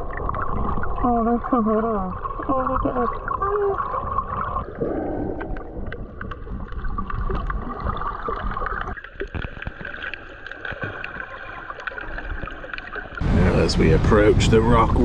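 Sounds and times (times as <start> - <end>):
muffled underwater gurgling: 0.0 - 9.8
underwater clicks and crackles: 0.0 - 13.2.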